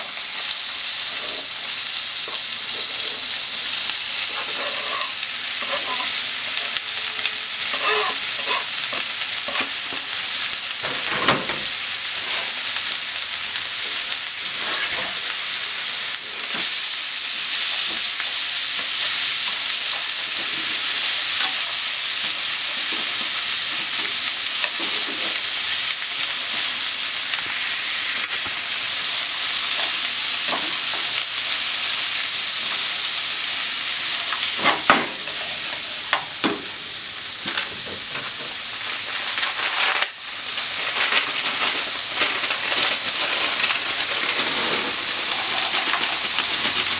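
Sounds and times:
food sizzling in oil: 0:00.0 - 0:46.9
spatula scraping and tapping pan: 0:04.3 - 0:06.2, 0:07.7 - 0:09.8.

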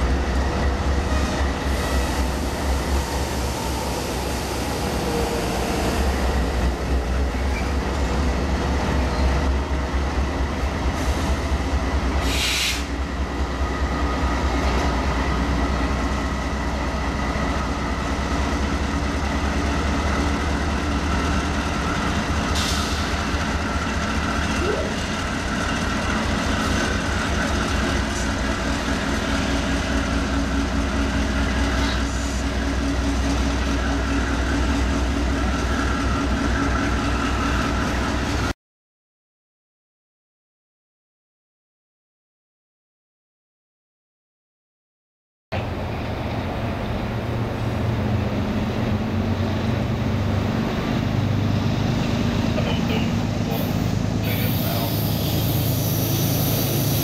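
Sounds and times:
wheel and rail noise: 0:00.0 - 0:38.5, 0:45.6 - 0:57.0
diesel locomotive engines droning: 0:00.0 - 0:38.6, 0:45.5 - 0:57.0
hiss bursts: 0:12.2 - 0:12.9, 0:53.5 - 0:57.0.

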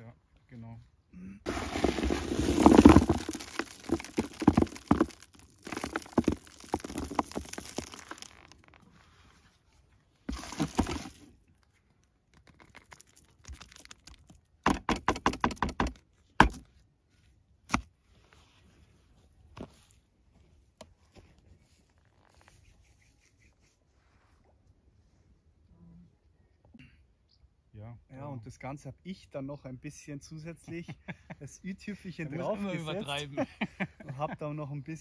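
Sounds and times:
wet bait scooped and dropped: 0:01.5 - 0:08.8, 0:10.3 - 0:11.2.

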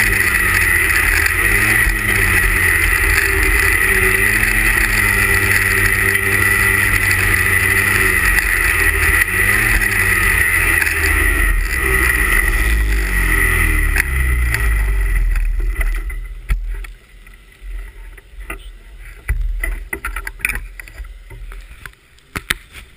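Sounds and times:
snowmobile engine running: 0:00.0 - 0:16.9.

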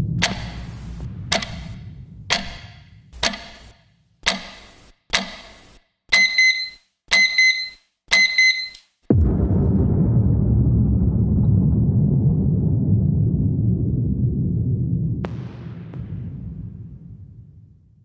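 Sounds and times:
clock ticking: 0:00.0 - 0:08.8
digital alarm clock beeping: 0:01.3 - 0:08.8.

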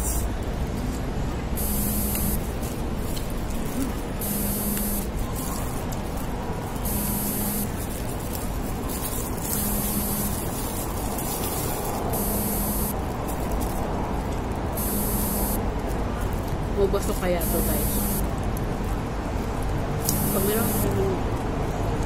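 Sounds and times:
mobile phone buzzing: 0:01.6 - 0:02.6, 0:04.2 - 0:05.1, 0:06.8 - 0:07.8, 0:09.5 - 0:10.6, 0:12.1 - 0:13.0, 0:14.8 - 0:15.6, 0:17.4 - 0:18.3, 0:20.0 - 0:21.0.

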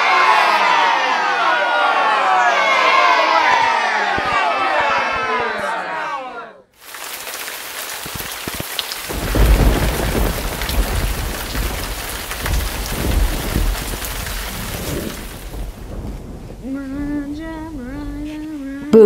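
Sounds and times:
heavy rain hissing: 0:06.8 - 0:18.9
low rumbling thunder: 0:07.2 - 0:18.9.

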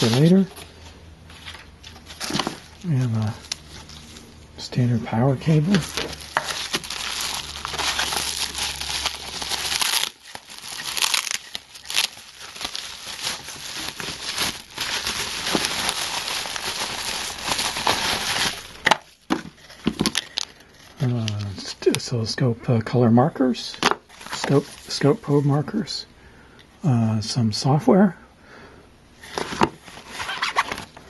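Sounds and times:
bubble wrap crinkling: 0:00.0 - 0:04.4, 0:05.4 - 0:21.6, 0:29.2 - 0:31.0.

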